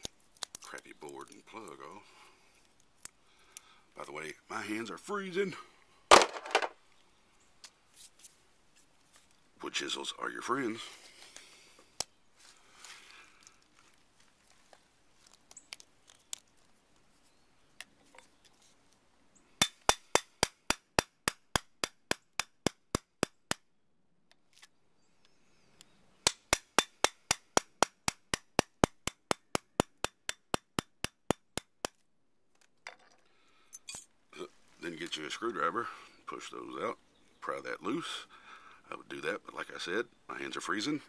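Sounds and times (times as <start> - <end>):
hammer striking metal chisel: 19.6 - 23.6, 26.3 - 32.0.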